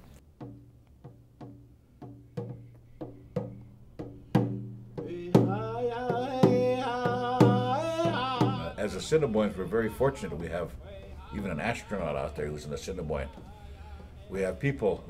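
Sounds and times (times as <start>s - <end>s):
hand drum beaten with stick: 0.3s - 8.8s
person singing: 5.0s - 14.8s.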